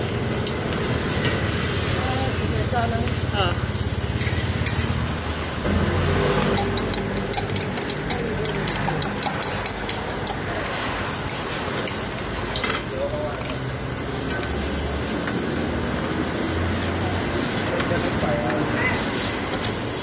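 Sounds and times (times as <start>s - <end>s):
pancakes sizzling on griddle: 0.0s - 20.0s
metal tongs clicking on griddle: 6.5s - 10.5s.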